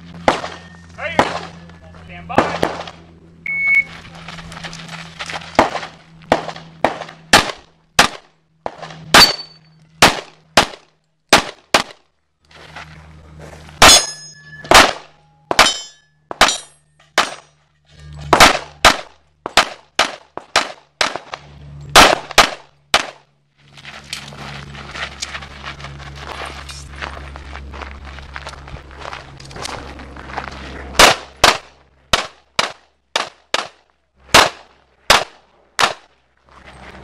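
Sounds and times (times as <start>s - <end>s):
pistol shots: 0.2s - 1.6s, 2.3s - 2.9s, 5.6s - 12.0s, 13.8s - 17.5s, 18.3s - 23.2s, 31.0s - 36.1s
ringing tone after shots: 0.3s - 1.8s, 9.1s - 9.8s, 13.8s - 16.9s
shot timer beep: 3.4s - 3.9s.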